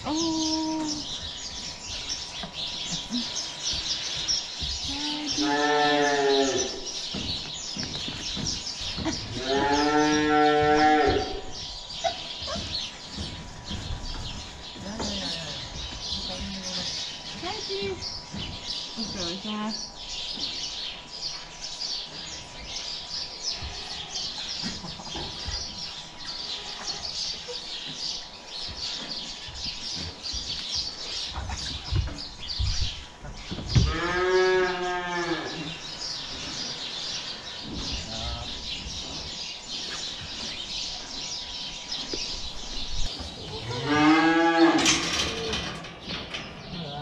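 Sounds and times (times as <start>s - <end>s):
small birds chirping: 0.0s - 47.0s
cow mooing: 5.2s - 6.8s, 9.4s - 11.4s, 43.6s - 44.9s.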